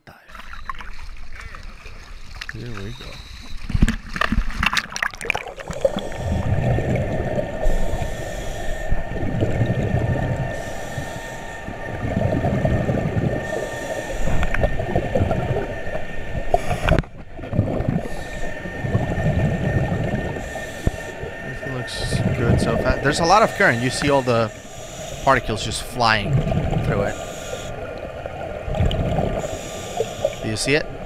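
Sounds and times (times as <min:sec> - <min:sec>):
exhaled bubbles rumbling: 0:00.1 - 0:31.0
diver breathing through regulator: 0:05.5 - 0:15.2, 0:16.4 - 0:17.1, 0:17.9 - 0:28.2, 0:28.8 - 0:30.7.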